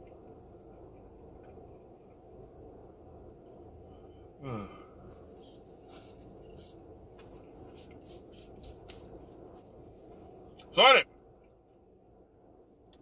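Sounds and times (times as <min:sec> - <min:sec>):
car air conditioning hum: 0:00.0 - 0:13.0
person chewing crunchy fries: 0:05.1 - 0:10.7.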